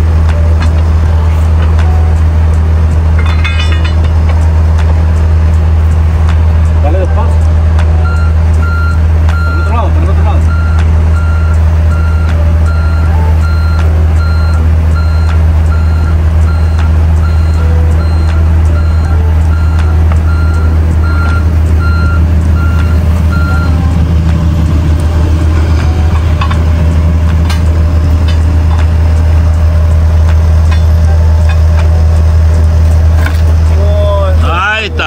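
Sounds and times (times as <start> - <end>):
diesel engine running: 0.0 - 35.0
travel alarm beeping: 8.0 - 24.3.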